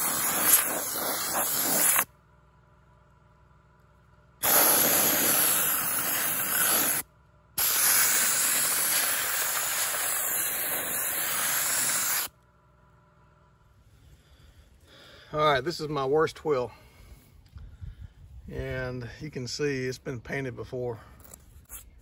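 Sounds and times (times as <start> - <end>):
soda blaster hissing: 0.0 - 2.1, 4.4 - 7.0, 7.6 - 12.3.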